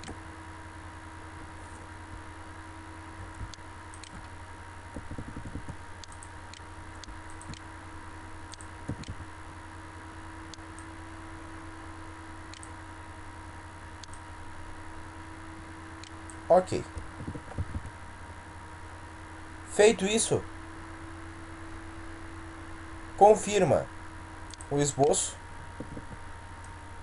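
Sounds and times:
electrical hum: 0.0s - 27.0s
computer mouse clicks: 3.3s - 4.3s, 4.9s - 7.7s, 8.5s - 9.3s, 12.5s - 12.7s, 14.0s - 14.2s.

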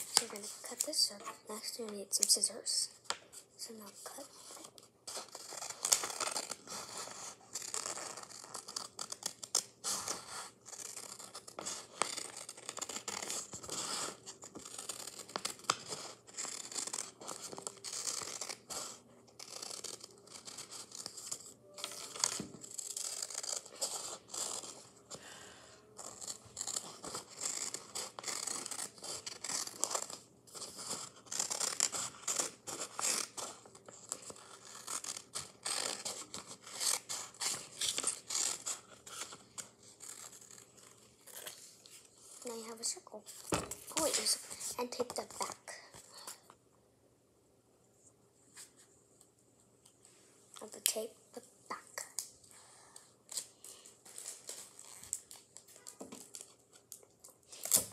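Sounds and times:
scissors snipping paper: 0.0s - 2.4s, 4.5s - 25.2s, 25.8s - 40.6s.

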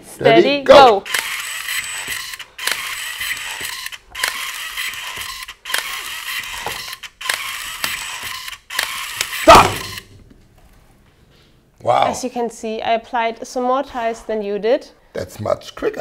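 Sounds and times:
cable tie gun cycling: 0.8s - 10.1s.

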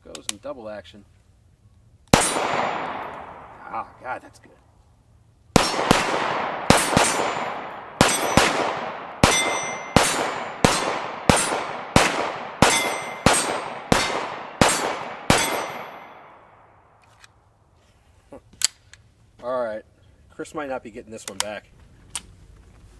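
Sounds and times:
pistol shots with echo: 2.1s - 3.8s, 5.6s - 16.6s
high ringing: 9.2s - 10.6s, 12.6s - 13.8s, 14.6s - 16.5s.

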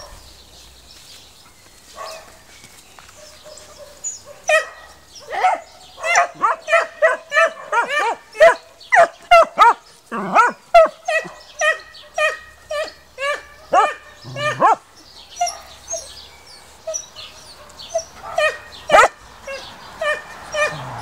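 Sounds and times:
small dog barking rapidly: 3.5s - 12.4s, 13.7s - 14.8s, 18.2s - 19.2s.

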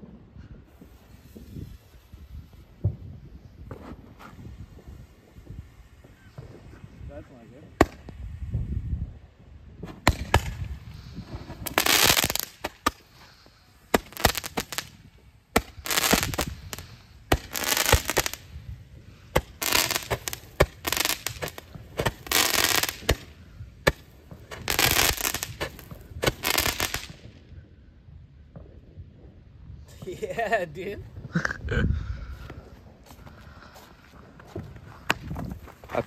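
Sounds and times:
firework pops: 0.7s - 6.8s, 7.8s - 8.3s, 9.8s - 13.2s, 13.9s - 18.5s, 19.3s - 27.3s, 34.6s - 35.6s
roman candle shots hissing: 9.8s - 27.2s.

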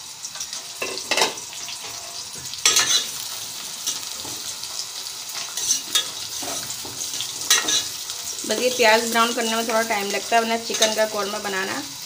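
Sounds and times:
onions sizzling in oil: 0.0s - 12.0s
metal ladle scraping pot: 5.4s - 8.8s.

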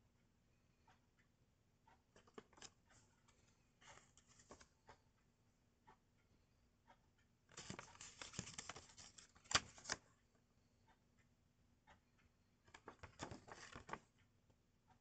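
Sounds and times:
paper rustling and crinkling: 3.9s - 4.6s, 7.5s - 10.0s, 12.8s - 14.0s
paper crackles: 7.5s - 10.0s, 12.8s - 14.0s.

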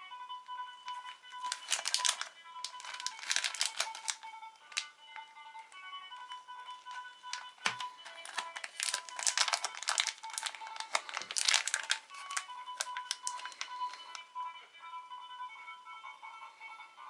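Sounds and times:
light background music: 0.0s - 17.0s
plastic foil packet crinkling: 0.9s - 4.9s, 7.3s - 14.2s.

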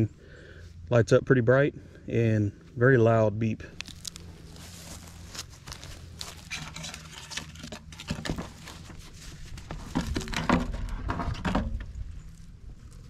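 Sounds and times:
footsteps on dry leaves: 3.7s - 10.3s
lid scraping and knocking: 6.5s - 8.6s.

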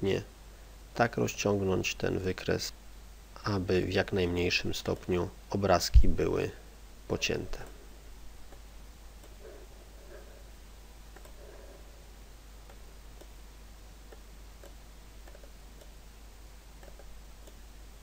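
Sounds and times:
background hiss: 0.0s - 18.0s
computer mouse clicks: 9.2s - 9.6s, 11.1s - 11.5s, 14.1s - 16.0s, 16.8s - 17.6s.

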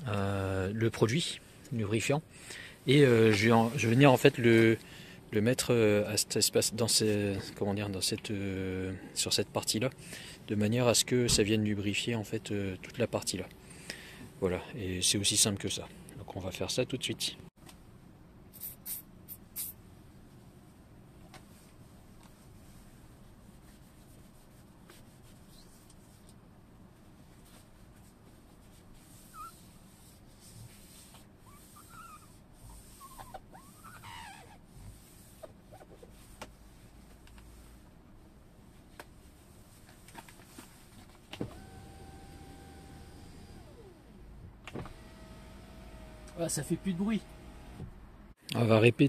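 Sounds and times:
power window motor whine: 41.4s - 48.0s.

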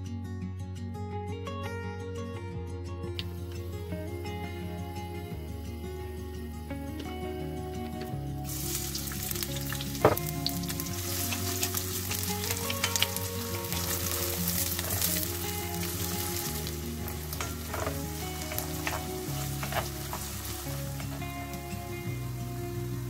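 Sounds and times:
onions sizzling in oil: 8.4s - 23.0s
wooden spoon knocking pan: 10.0s - 11.7s, 17.0s - 21.3s.

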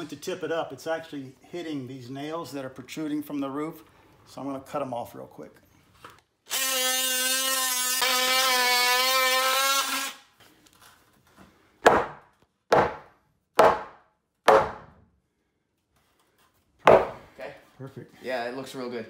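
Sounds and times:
sharp knocks on wood: 11.8s - 15.0s, 16.9s - 17.2s.

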